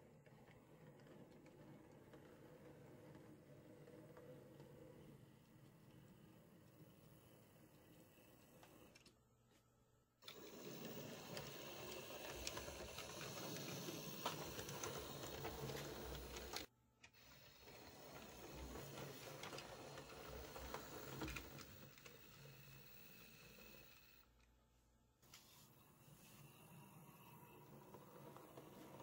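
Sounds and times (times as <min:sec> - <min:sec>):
model train motor whirr: 0:10.2 - 0:24.2, 0:25.8 - 0:29.0
wheels clicking on rails: 0:10.2 - 0:24.2, 0:27.0 - 0:29.0.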